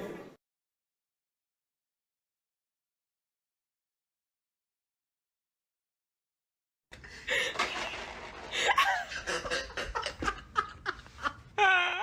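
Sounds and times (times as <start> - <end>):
person laughing breathily: 7.0 - 7.8, 8.4 - 11.8.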